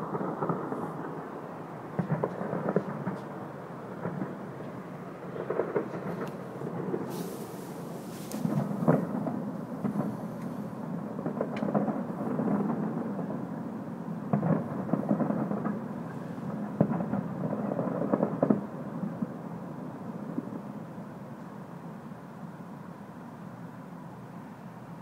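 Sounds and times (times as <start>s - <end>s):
steady low rumble: 0.0s - 15.9s
sharp fireworks reports: 0.0s - 20.7s
distant fireworks booming and crackling: 0.0s - 21.9s.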